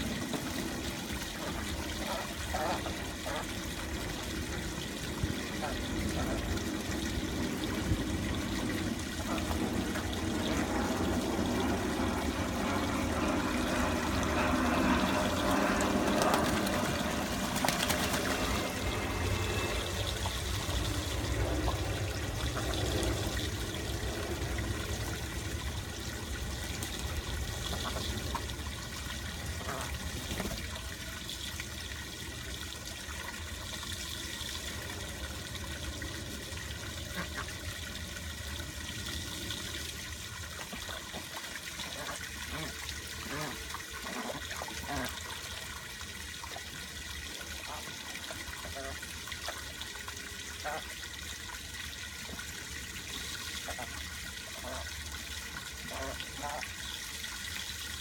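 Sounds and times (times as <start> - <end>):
hose water splashing on deck: 0.0 - 35.2
ducks bathing: 0.0 - 58.0.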